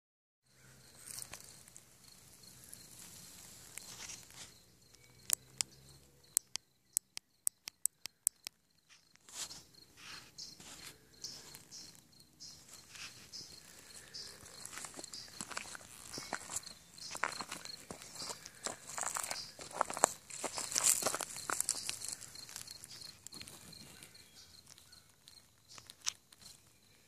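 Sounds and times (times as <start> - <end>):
high insect trill: 0.5 - 27.0
soft rustling and scuffing: 2.9 - 4.6, 8.9 - 13.6
sharp clicks: 4.9 - 8.6.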